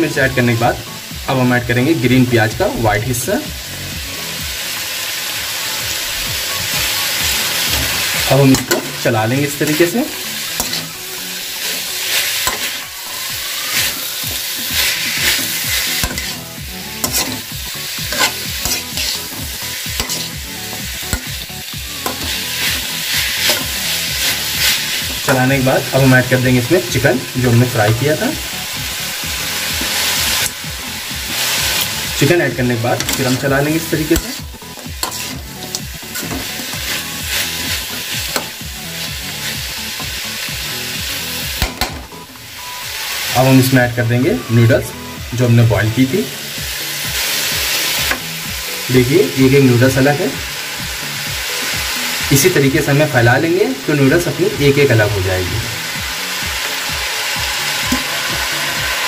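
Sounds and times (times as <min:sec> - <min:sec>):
vegetables sizzling in a pan: 0:00.0 - 0:59.0
metal spatula scraping a pan: 0:07.6 - 0:25.3, 0:32.9 - 0:39.1.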